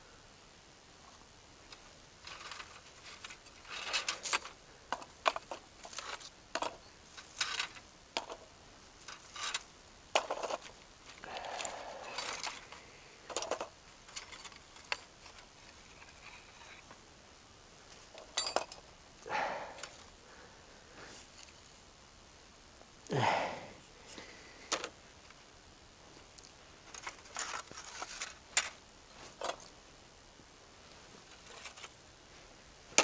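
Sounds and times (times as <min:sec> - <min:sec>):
metal fragments clinking in container: 0:18.2 - 0:18.8.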